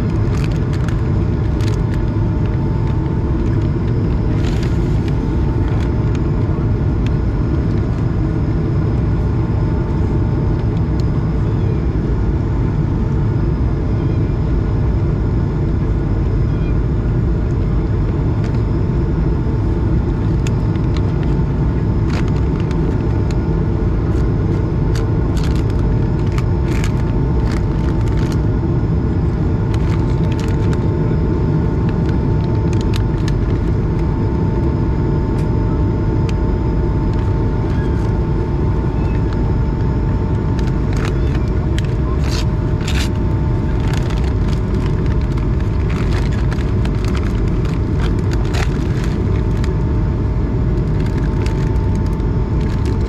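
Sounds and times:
jet engines droning: 0:00.0 - 0:53.0
mid-pitched whine: 0:00.0 - 0:53.0.

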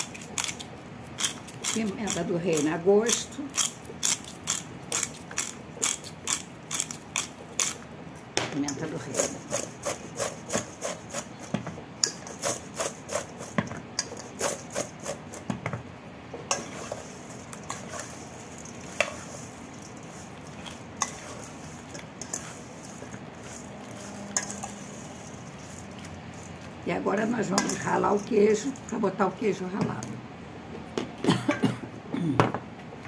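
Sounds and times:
hands mixing food in steel bowl: 0:00.0 - 0:07.8, 0:08.5 - 0:15.6, 0:16.4 - 0:30.1
food shaken in a steel bowl: 0:08.7 - 0:15.5, 0:16.5 - 0:29.0.

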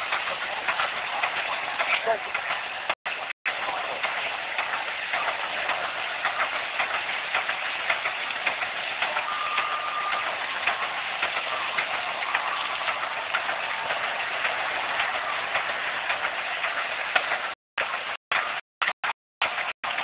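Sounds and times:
steam engine clicking and knocking: 0:00.0 - 0:20.0
steam hissing: 0:03.6 - 0:16.2.

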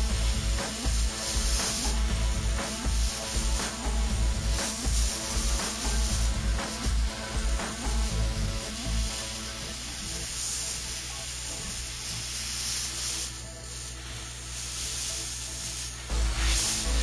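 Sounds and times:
milling machine cutting hiss: 0:00.0 - 0:17.0
soft background music: 0:00.0 - 0:17.0
low machine hum: 0:16.1 - 0:17.0.

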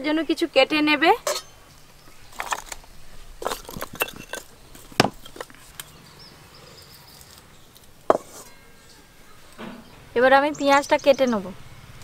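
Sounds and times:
firewood sticks knocking: 0:02.2 - 0:05.9, 0:08.0 - 0:08.6, 0:09.5 - 0:10.0.

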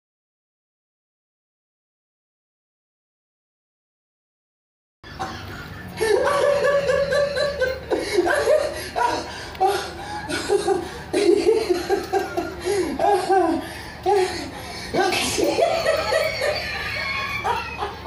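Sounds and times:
people laughing heartily: 0:05.1 - 0:18.0.

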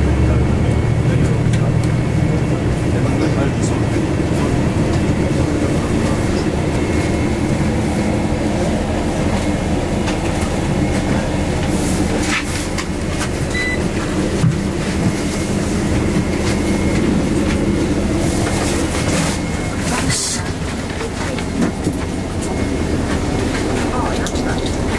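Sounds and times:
vehicle rumbling and rattling: 0:00.0 - 0:24.9
short high beep: 0:13.5 - 0:13.9.

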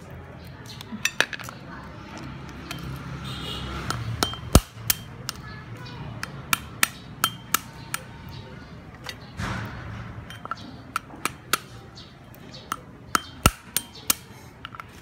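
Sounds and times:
cleaver chopping on wooden board: 0:03.9 - 0:05.4, 0:10.9 - 0:11.7, 0:12.7 - 0:14.3.

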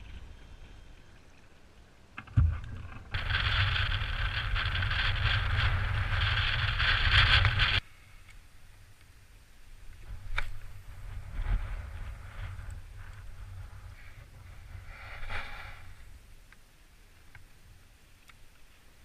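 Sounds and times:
faint low rumble: 0:00.0 - 0:18.0
wind buffeting microphone: 0:02.3 - 0:07.8, 0:09.9 - 0:16.3.

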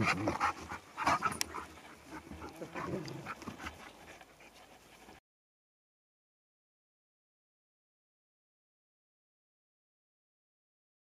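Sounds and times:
dogs play-fighting and vocalising: 0:00.0 - 0:05.2.

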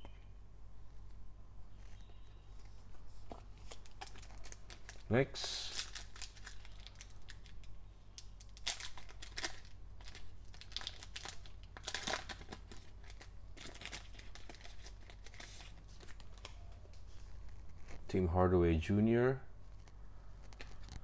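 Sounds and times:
steady low hum: 0:00.0 - 0:21.0
foil wrapper crinkling and tearing: 0:03.6 - 0:18.0.

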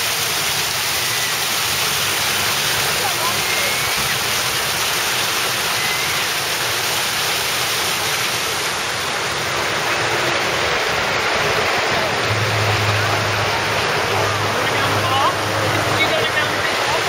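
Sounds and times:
steady rushing noise: 0:00.0 - 0:17.0
low hum: 0:10.1 - 0:16.8.

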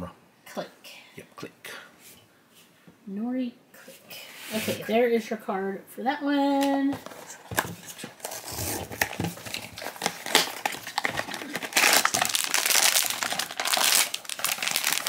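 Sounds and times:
foil bag crinkling: 0:08.2 - 0:15.0.

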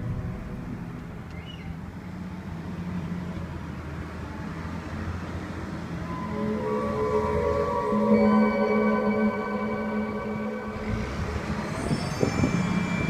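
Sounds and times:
car engine idling: 0:00.0 - 0:07.7.

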